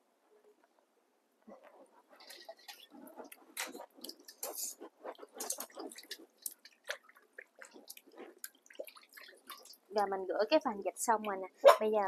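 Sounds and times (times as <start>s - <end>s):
wet squelches and splashes: 2.1s - 10.0s.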